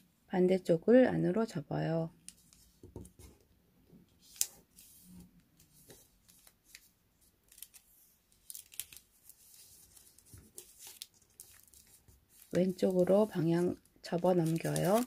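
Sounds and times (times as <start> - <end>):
paper rustling and crackling: 4.2 - 15.0.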